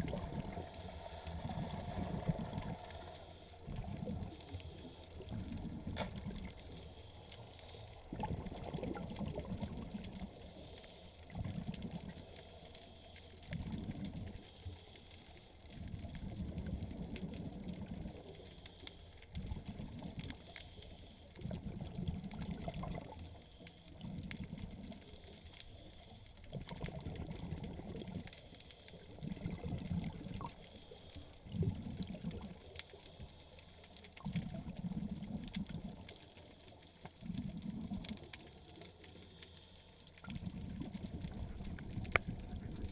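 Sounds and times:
exhaled bubbles gurgling underwater: 0:00.0 - 0:14.8, 0:15.6 - 0:18.5, 0:19.2 - 0:39.3, 0:39.9 - 0:42.9.

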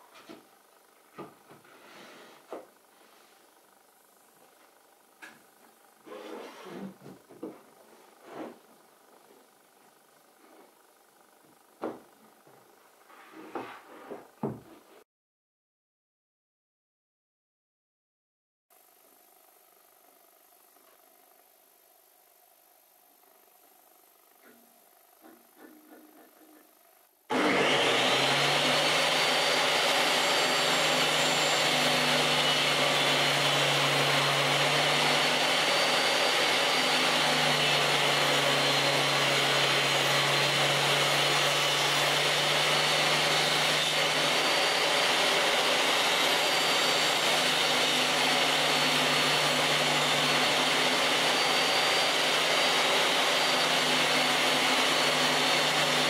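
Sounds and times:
table saw motor running: 0:18.8 - 0:56.0
saw blade cutting wood: 0:25.2 - 0:56.0.

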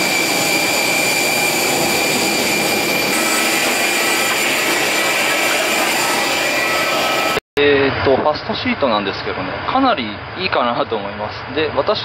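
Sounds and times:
high steady tones: 0:00.0 - 0:07.4
jet aircraft whine and rush: 0:00.0 - 0:07.4.

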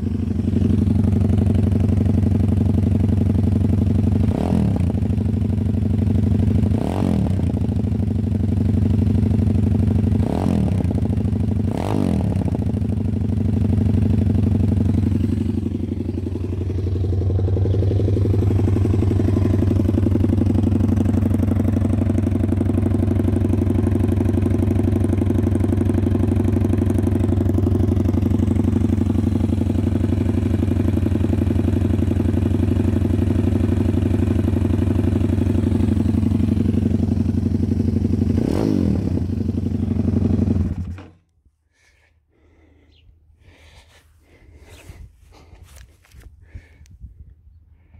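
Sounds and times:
motorbike engine revving and idling: 0:00.0 - 0:46.8.

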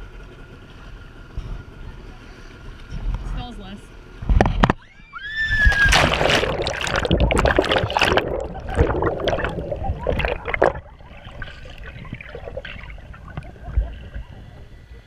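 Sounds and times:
water splashing and churning: 0:05.5 - 0:15.0
crackling bubbles: 0:05.6 - 0:15.0
muffled underwater rush: 0:05.6 - 0:15.0.

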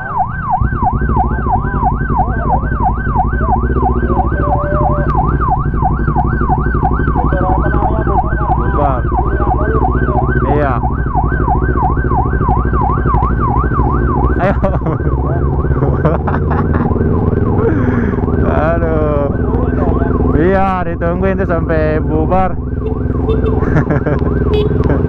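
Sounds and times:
police siren yelping: 0:00.0 - 0:25.0
motorcycle engine running: 0:00.1 - 0:25.0.

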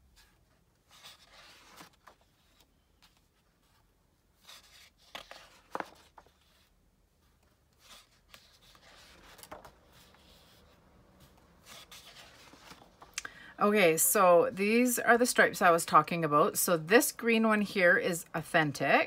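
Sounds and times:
paper sheets rustling: 0:00.2 - 0:13.1.

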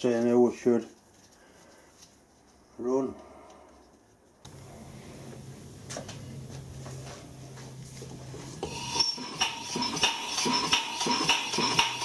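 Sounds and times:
small steam engine clanking: 0:08.6 - 0:12.0.

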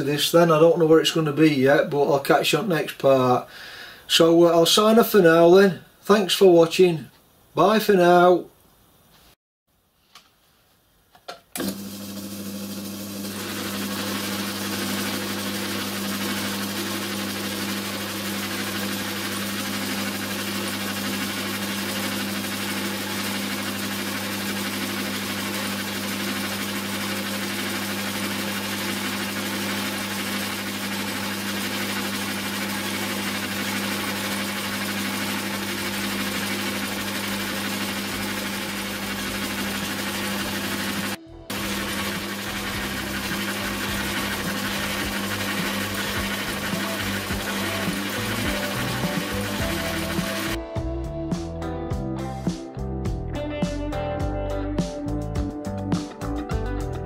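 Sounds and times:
small lathe motor humming: 0:11.6 - 0:50.6
belt and gears whirring: 0:13.3 - 0:50.6.

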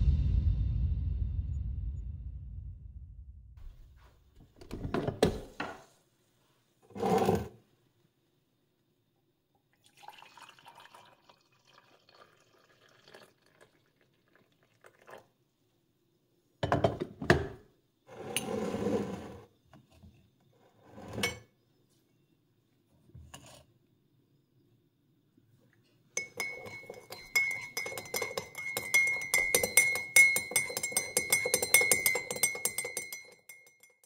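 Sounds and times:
liquid pouring into mug: 0:09.7 - 0:15.3
glass and crockery clinking: 0:16.6 - 0:17.6, 0:21.0 - 0:21.5, 0:26.2 - 0:34.0.

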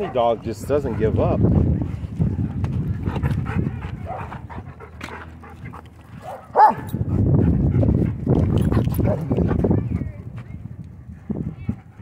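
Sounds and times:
dogs panting and scuffling: 0:00.0 - 0:12.0
dog barking: 0:06.2 - 0:06.9.

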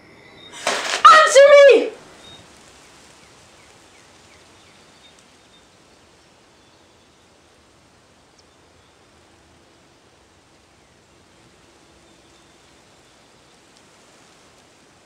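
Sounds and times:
wind hiss: 0:00.0 - 0:15.0
faint high bird chirps: 0:00.1 - 0:01.6.

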